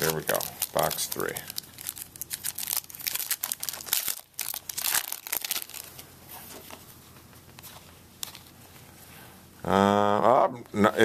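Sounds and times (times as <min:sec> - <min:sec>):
foil wrapper tearing and crinkling: 0:00.0 - 0:06.0.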